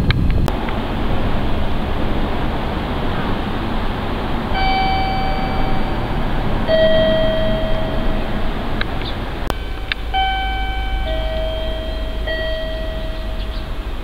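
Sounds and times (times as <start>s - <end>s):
steady background hiss: 0.4s - 14.0s
two-tone station chime: 4.6s - 8.7s, 9.5s - 14.0s.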